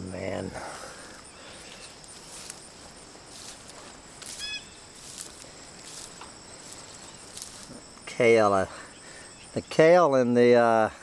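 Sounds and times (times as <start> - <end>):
insects trilling: 0.0 - 11.0
footsteps through plants: 0.7 - 8.1.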